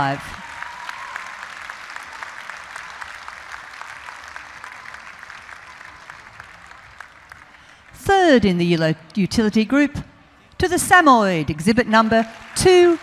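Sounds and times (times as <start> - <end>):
audience applauding: 0.0 - 8.0, 11.6 - 13.0.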